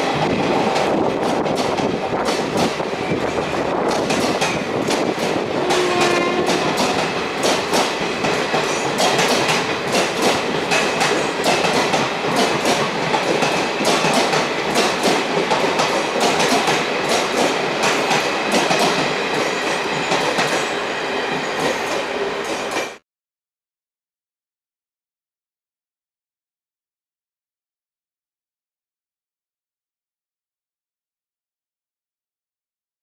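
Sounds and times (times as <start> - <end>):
train wheels clattering over rail joints: 0.2 - 20.7.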